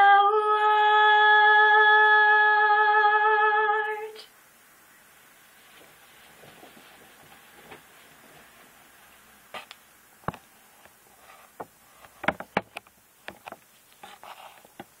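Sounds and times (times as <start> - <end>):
faint room hiss: 0.0 - 15.0
handling clicks and taps: 11.6 - 13.7.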